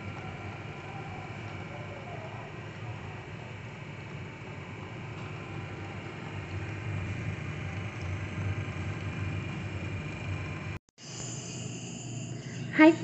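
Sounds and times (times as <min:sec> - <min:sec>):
machine low hum: 0:00.0 - 0:13.0.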